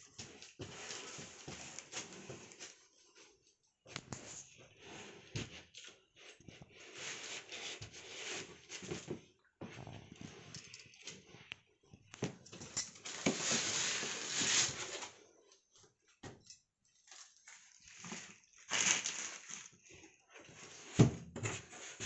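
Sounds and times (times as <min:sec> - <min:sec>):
packing material rustling: 0:12.9 - 0:15.2, 0:17.1 - 0:20.8.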